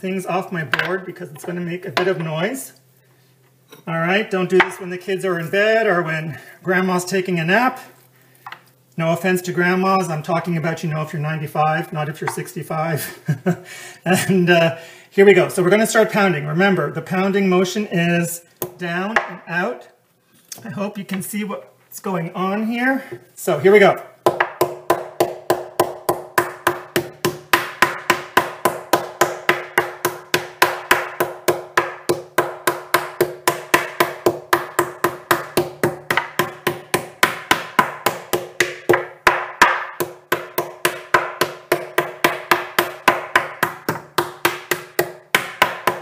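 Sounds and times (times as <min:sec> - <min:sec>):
meat tenderizer pounding beef: 0:24.2 - 0:46.0.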